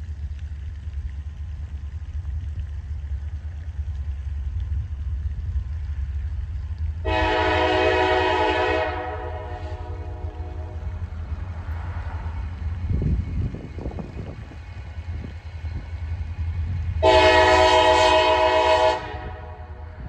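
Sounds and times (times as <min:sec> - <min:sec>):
low rumble: 0:00.0 - 0:20.0
locomotive air horn blast: 0:07.0 - 0:10.9, 0:17.0 - 0:20.0.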